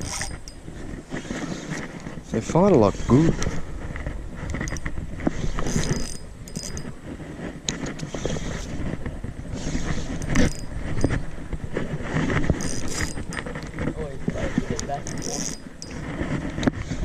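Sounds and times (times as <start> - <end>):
fishing reel clicking: 0.0 - 0.7, 4.5 - 7.0, 9.7 - 11.2, 12.5 - 13.6, 14.7 - 16.0.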